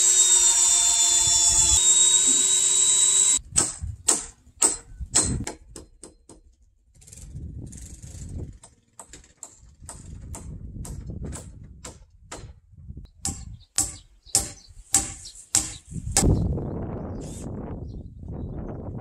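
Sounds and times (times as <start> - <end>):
hammer blows on wooden rafters: 2.2 - 6.6, 8.6 - 16.3.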